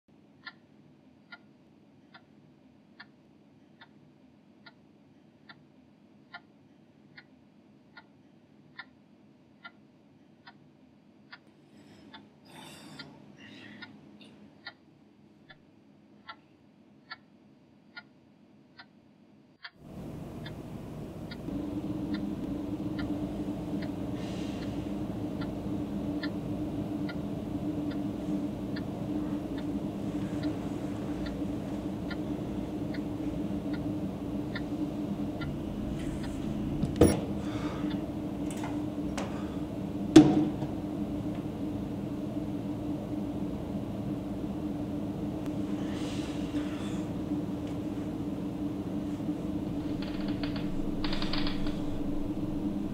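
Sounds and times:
low steady drone: 0:19.8 - 0:52.9
alarm clock ticking: 0:21.3 - 0:36.5.

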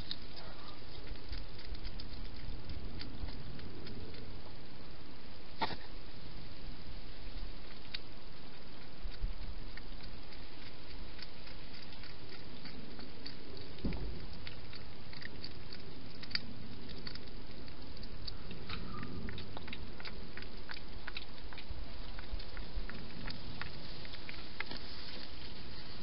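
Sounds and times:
hedgehog chewing: 0:00.0 - 0:26.0.

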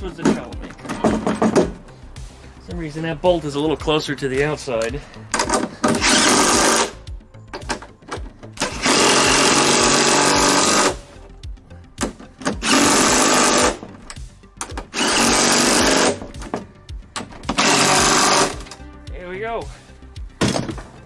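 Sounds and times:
impact driver running bolts: 0:05.3 - 0:07.0, 0:08.6 - 0:11.0, 0:12.4 - 0:13.8, 0:14.6 - 0:16.3, 0:17.5 - 0:18.8.

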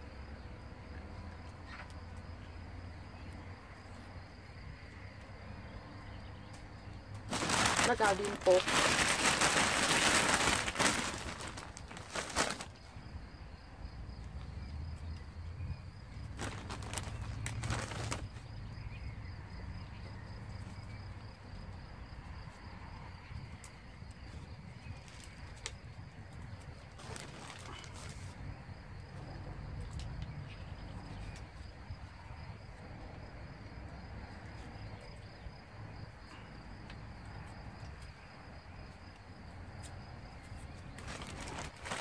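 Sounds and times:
plastic bag rustling: 0:07.3 - 0:12.8, 0:16.3 - 0:18.3, 0:27.0 - 0:28.3, 0:41.0 - 0:42.0.

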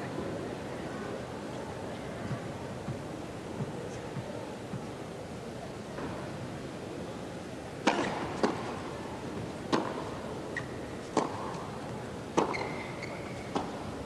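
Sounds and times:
tennis ball struck and bouncing: 0:07.8 - 0:08.8, 0:09.7 - 0:11.6, 0:12.3 - 0:13.8.

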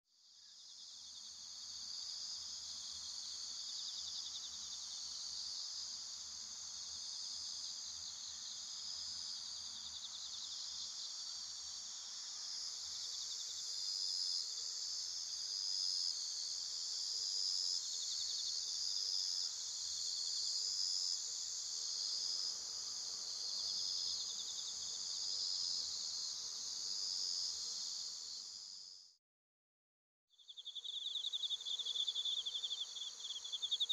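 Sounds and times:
insect chirping: 0:00.2 - 0:29.1, 0:30.3 - 0:33.9
insects trilling: 0:30.4 - 0:33.9.

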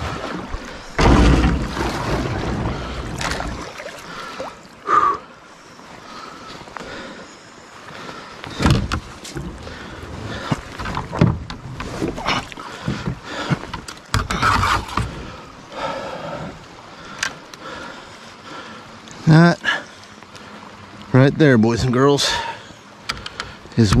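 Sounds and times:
paddle splashing in water: 0:00.0 - 0:05.0, 0:08.0 - 0:15.4
paddle knocking kayak hull: 0:10.4 - 0:15.2
hard breathing: 0:12.4 - 0:13.8, 0:15.1 - 0:20.7.

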